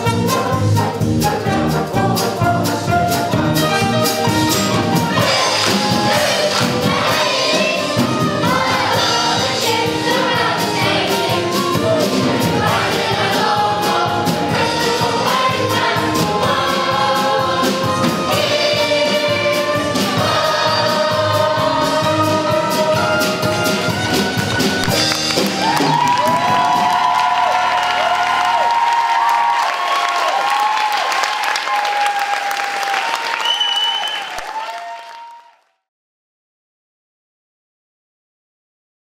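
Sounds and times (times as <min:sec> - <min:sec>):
choir singing with accompaniment: 0:00.0 - 0:27.0
stage music: 0:00.0 - 0:35.6
audience applauding and cheering: 0:04.1 - 0:15.9, 0:22.9 - 0:35.9.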